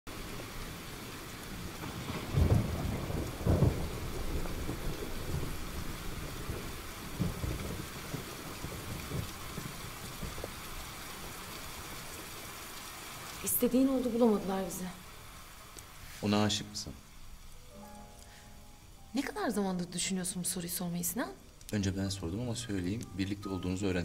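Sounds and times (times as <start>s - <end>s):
heavy rain pouring: 0.1s - 24.0s
rolling thunder: 1.3s - 12.4s.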